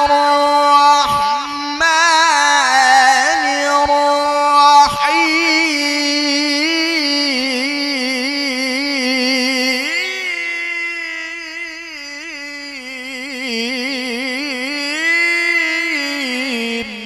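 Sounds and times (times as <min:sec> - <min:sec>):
man reciting melismatic chant: 0:00.0 - 0:17.0.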